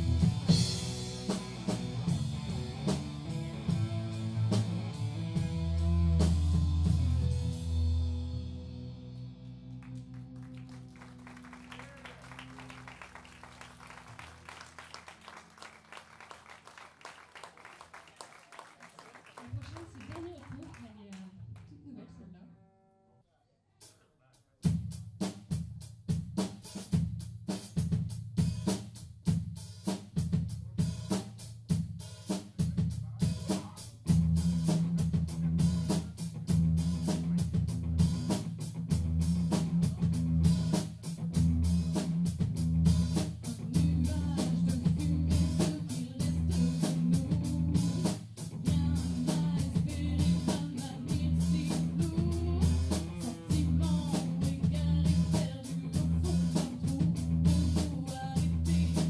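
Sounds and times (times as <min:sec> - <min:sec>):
guitar: 0:00.0 - 0:15.1, 0:33.2 - 0:59.0
drum kit beat: 0:00.0 - 0:17.2, 0:23.8 - 0:59.0.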